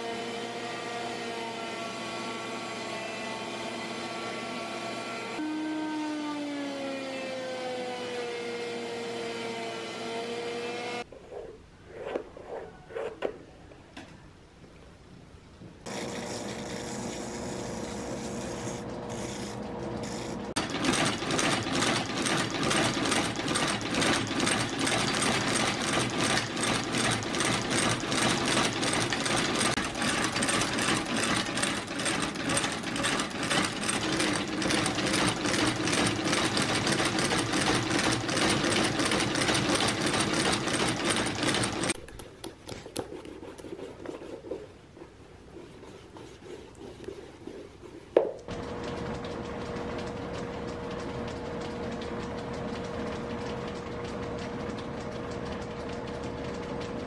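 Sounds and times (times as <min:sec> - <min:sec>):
spinning wheel against leather sole: 0:15.9 - 0:53.7
stitching machine clatter: 0:20.6 - 0:42.0.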